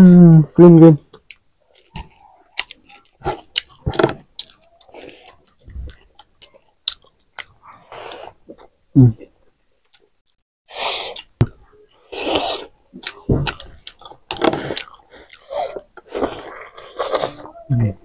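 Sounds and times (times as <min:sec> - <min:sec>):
wet chewing and lip smacks: 0:01.1 - 0:07.6.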